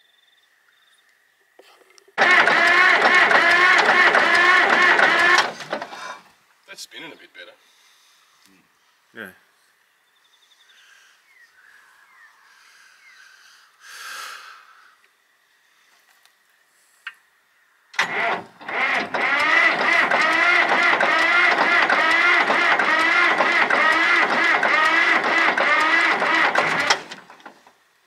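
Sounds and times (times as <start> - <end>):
starter motor cranking diesel engine: 2.2 - 6.1, 18.0 - 27.8.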